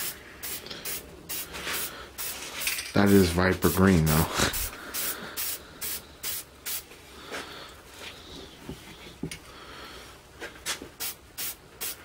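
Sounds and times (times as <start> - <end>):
spray paint can hissing: 0.0 - 6.9, 11.0 - 12.0.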